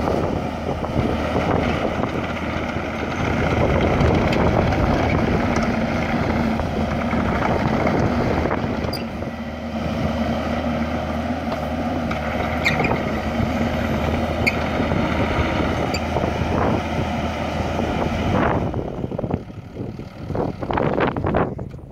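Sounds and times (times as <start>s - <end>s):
excavator diesel engine running: 0.0s - 21.9s.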